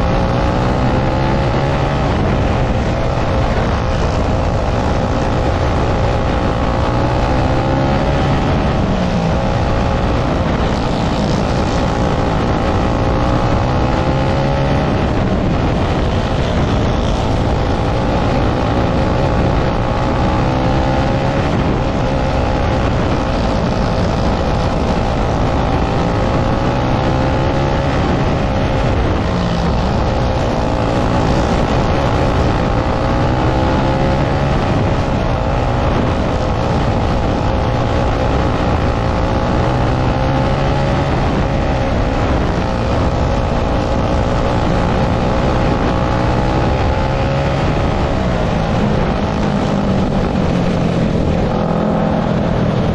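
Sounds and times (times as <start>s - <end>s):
rush of the track: 0.0s - 52.9s.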